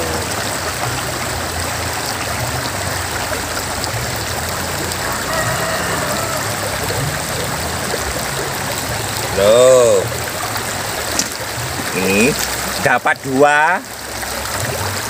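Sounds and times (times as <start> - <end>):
river rushing over stones: 0.0 - 15.0.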